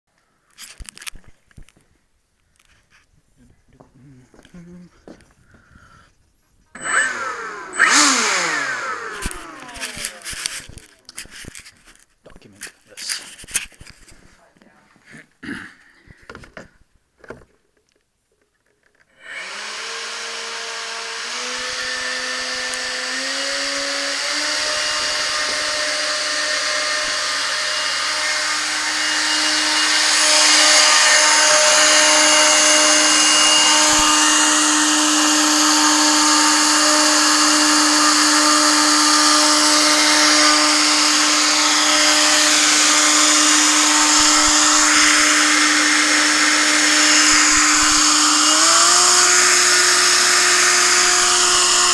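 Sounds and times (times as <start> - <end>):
electric motor and propeller whine: 6.8 - 11.0, 19.1 - 51.9.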